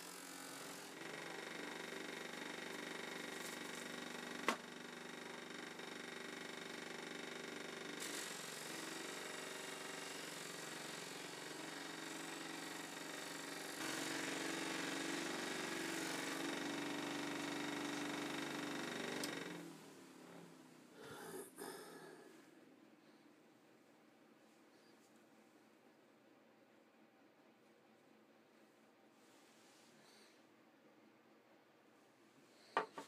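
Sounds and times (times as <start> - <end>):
bench grinder buffing: 0.0 - 19.6.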